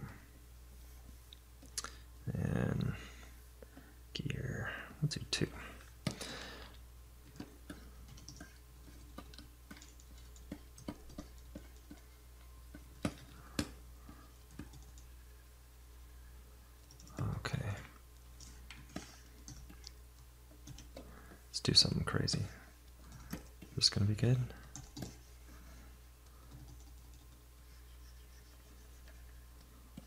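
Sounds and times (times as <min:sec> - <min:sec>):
low electrical hum: 0:00.0 - 0:30.0
keyboard keys clicking: 0:07.3 - 0:12.0, 0:20.6 - 0:21.0, 0:24.6 - 0:25.2, 0:26.4 - 0:27.4.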